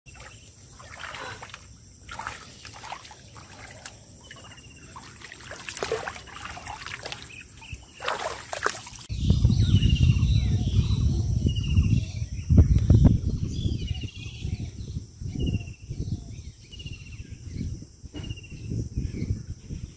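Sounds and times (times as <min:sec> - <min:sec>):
feet sloshing through muddy water: 0:00.1 - 0:09.1
water splashes: 0:00.1 - 0:09.1
birds chirping: 0:00.1 - 0:17.7.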